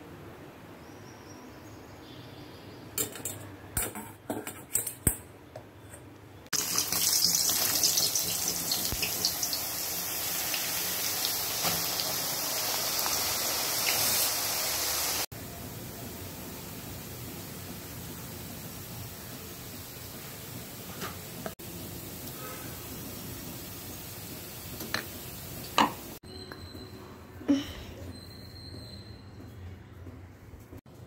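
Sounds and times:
potato slices deep-frying in oil: 0:06.5 - 0:26.2.

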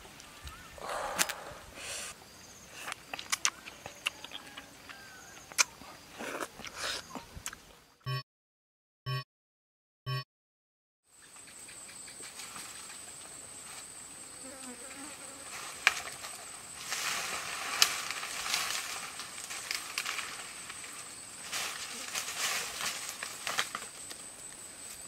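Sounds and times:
footsteps on dry leaves: 0:15.5 - 0:24.1.

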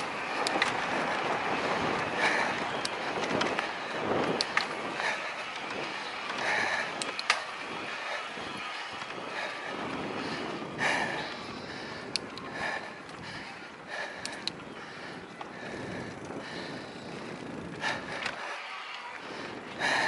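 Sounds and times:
bike rattling over bumps: 0:00.0 - 0:20.0
bike tyres on dirt: 0:00.0 - 0:20.0.

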